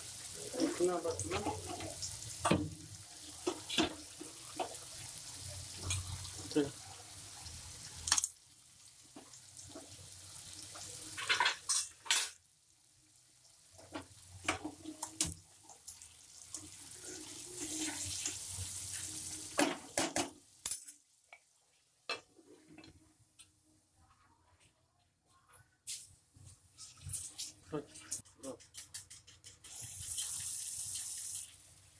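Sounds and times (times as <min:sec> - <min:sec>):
water hissing in hot pan: 0:00.0 - 0:20.9, 0:29.6 - 0:31.9
spatula scraping a pan: 0:16.8 - 0:19.3.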